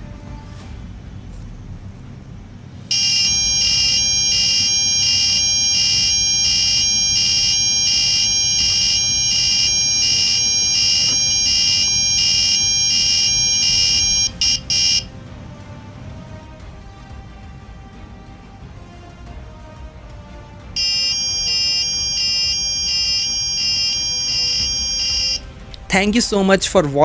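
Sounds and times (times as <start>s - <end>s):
pulsing electronic buzzer: 2.9s - 15.1s, 20.8s - 25.5s.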